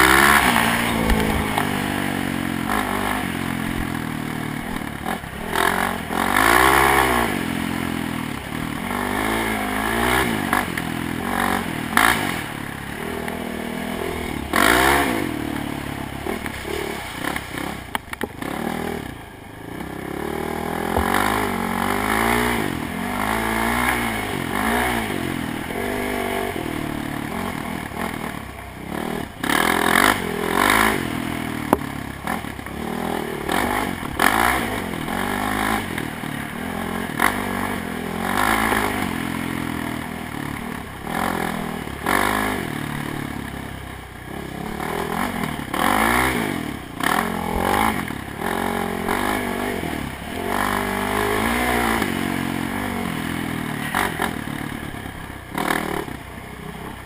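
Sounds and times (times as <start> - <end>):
atv engine revving: 0.0 - 57.0
vehicle rattling over rough ground: 0.0 - 57.0.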